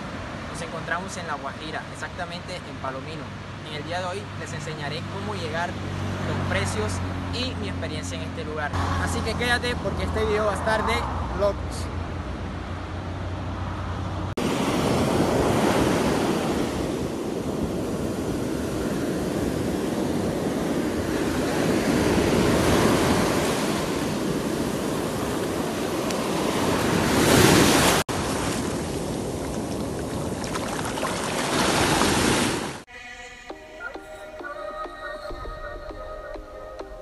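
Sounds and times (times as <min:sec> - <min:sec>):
wind noise on microphone: 0:14.4 - 0:32.7
waves breaking on shore: 0:14.4 - 0:32.9.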